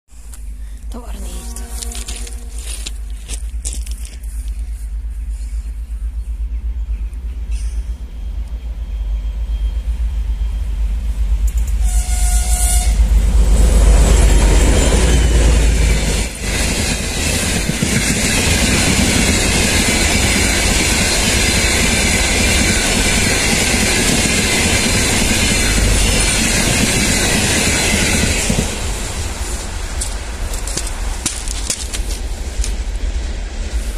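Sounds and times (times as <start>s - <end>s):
diesel locomotive engine rumble: 0.1s - 33.9s
train horn: 1.1s - 3.0s, 11.8s - 13.3s
train wheels rolling on rails: 1.2s - 33.9s.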